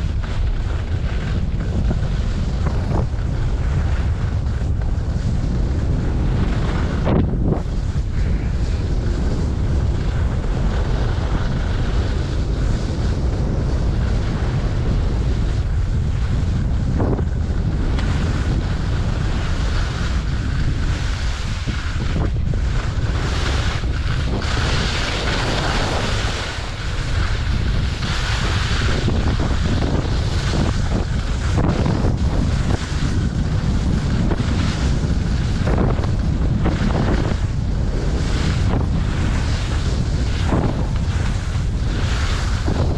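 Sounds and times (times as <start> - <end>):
skis scraping on snow: 0.0 - 42.9
wind buffeting microphone: 0.0 - 42.9.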